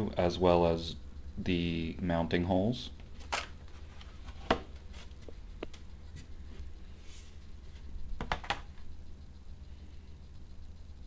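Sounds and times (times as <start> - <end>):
faint low hum: 0.0 - 11.0.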